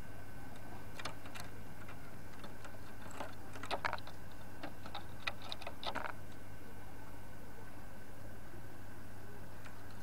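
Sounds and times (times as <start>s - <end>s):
faint steady hum: 0.0s - 10.0s
dove clicking: 0.5s - 6.4s.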